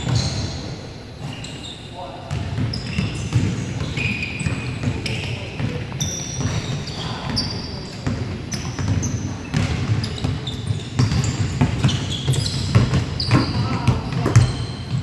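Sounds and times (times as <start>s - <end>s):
sneakers squeaking: 0.0s - 15.0s
basketball bouncing on hardwood floor: 8.0s - 15.0s.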